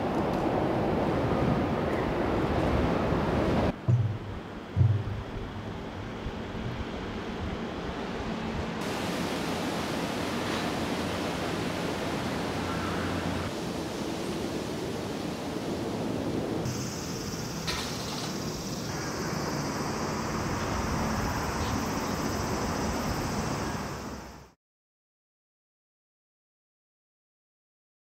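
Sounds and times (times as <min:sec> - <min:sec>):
outdoor noise wash: 0:00.0 - 0:24.6
low hum: 0:03.7 - 0:08.8.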